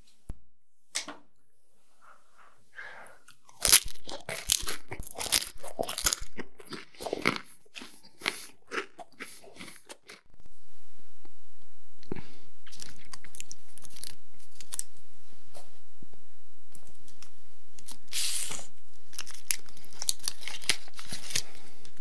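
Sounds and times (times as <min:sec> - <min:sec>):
soft chewing: 0:02.4 - 0:10.4, 0:12.0 - 0:14.9, 0:16.7 - 0:22.0
crisp crunches of biting: 0:03.3 - 0:10.3, 0:12.6 - 0:14.9, 0:17.8 - 0:22.0.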